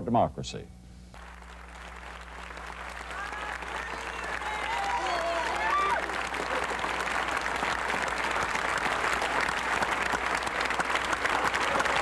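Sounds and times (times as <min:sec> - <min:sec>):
crowd applauding: 0:01.1 - 0:12.0.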